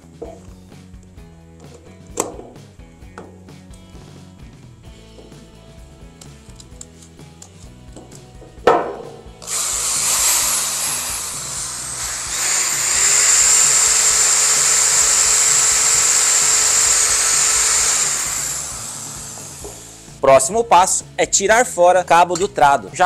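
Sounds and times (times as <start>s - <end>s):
sharp knock: 8.6s - 9.3s
electric drill whining: 9.4s - 20.2s.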